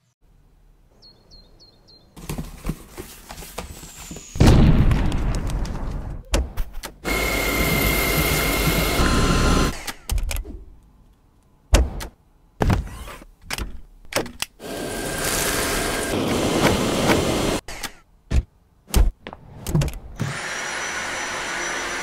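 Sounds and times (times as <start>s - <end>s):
vacuum cleaner whining: 7.0s - 9.8s, 14.6s - 17.6s, 20.2s - 22.0s.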